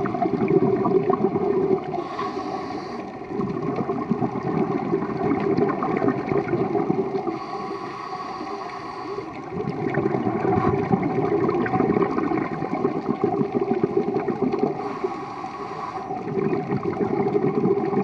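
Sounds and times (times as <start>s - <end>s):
bubbling of exhaled air: 0.0s - 18.0s
faint high hiss of breath: 2.0s - 3.2s, 7.3s - 9.4s, 14.8s - 16.2s.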